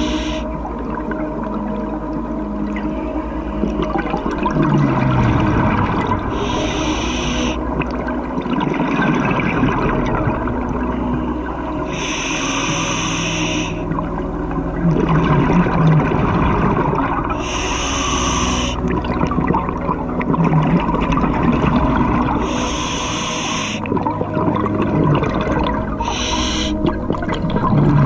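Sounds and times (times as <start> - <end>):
exhaled bubbles gushing: 3.6 - 11.2, 13.6 - 28.0
regulator gurgling: 3.6 - 14.0, 14.6 - 28.0.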